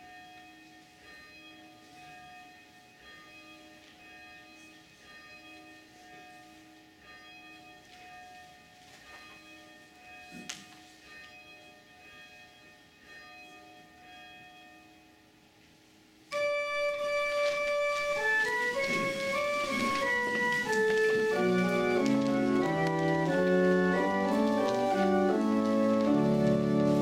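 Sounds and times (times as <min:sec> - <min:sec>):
church bell tolling faintly: 0:00.0 - 0:15.4, 0:16.3 - 0:27.0
pipe organ sustained chord: 0:16.3 - 0:27.0.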